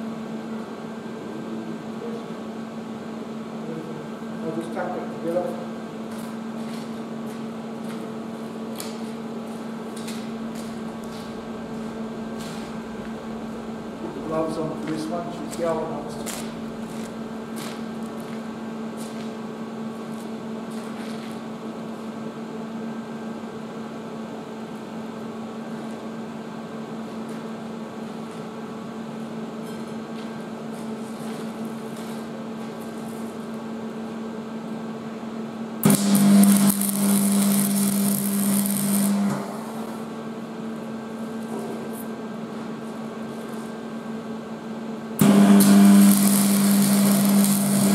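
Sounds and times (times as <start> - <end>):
welding machine electrical hum: 0.0 - 47.9
welding arc crackling hiss: 8.8 - 18.5, 35.8 - 40.1, 45.2 - 47.9.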